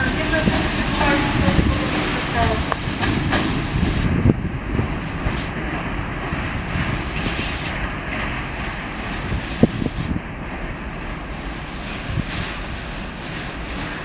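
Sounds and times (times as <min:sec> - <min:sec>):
train wheels rumbling on track: 0:00.0 - 0:14.0.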